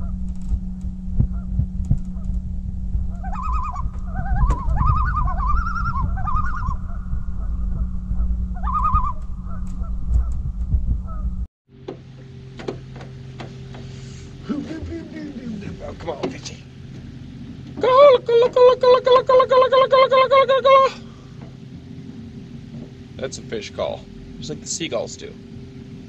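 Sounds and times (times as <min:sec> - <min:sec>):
low hum and rumble: 0:00.0 - 0:26.0
waterbirds honking: 0:01.3 - 0:10.4, 0:12.1 - 0:26.0.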